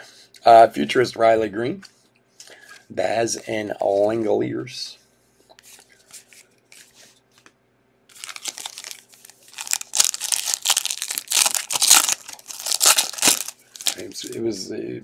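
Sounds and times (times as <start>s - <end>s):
foil wrapper tearing and crinkling: 8.1s - 14.4s.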